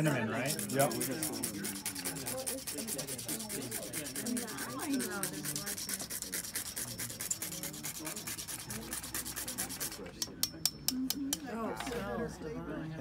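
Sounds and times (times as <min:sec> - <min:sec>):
cinnamon stick grated on rasp: 0:00.0 - 0:10.9.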